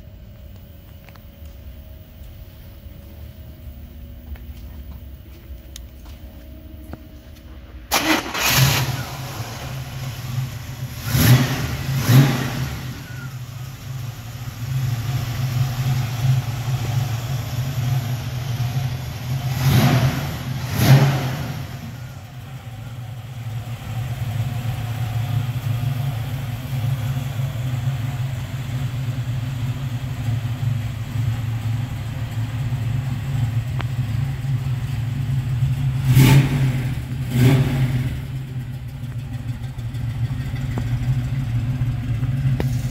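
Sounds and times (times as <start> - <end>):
car engine idling: 0.0 - 42.9
engine revving blips: 10.9 - 13.5.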